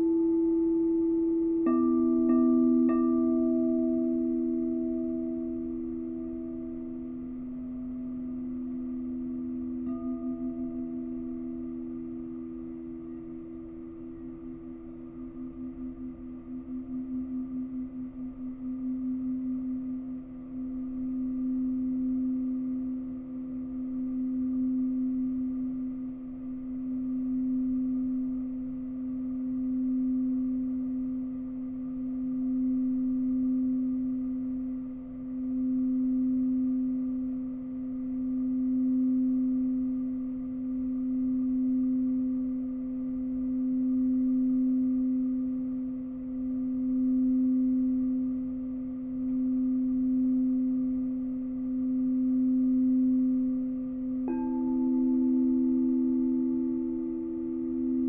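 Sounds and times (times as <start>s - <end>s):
higher singing bowl note: 0.0s - 17.8s
singing bowl low note: 0.0s - 58.0s.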